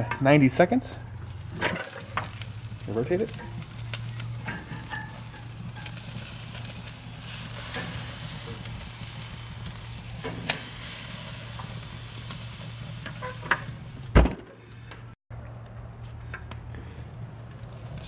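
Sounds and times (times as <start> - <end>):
steak sizzling on a grill: 1.1 - 14.1.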